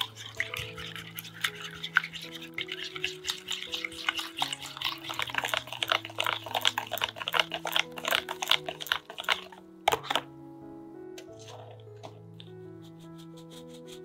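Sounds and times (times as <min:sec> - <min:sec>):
whisk beating in glass bowl: 0:00.0 - 0:10.2
soft background music: 0:00.0 - 0:14.0.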